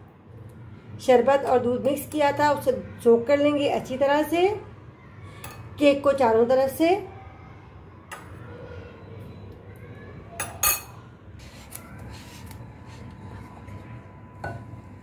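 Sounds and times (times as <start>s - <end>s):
low background noise: 0.0s - 15.0s
utensils clinking against dishes: 5.4s - 5.8s, 10.4s - 11.0s.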